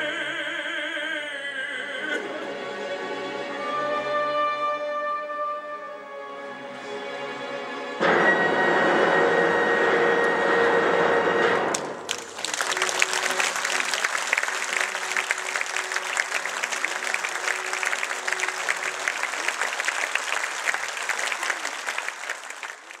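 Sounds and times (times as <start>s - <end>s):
audience applauding: 11.7s - 23.0s.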